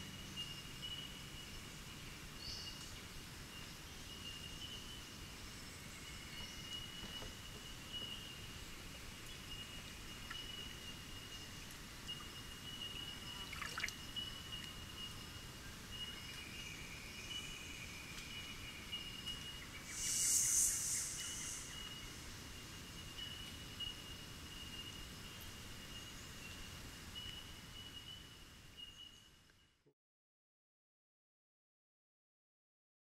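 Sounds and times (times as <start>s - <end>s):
stream water lapping and trickling: 9.2s - 15.5s
thin high tone: 19.8s - 22.2s
brief louder hiss: 19.8s - 22.3s.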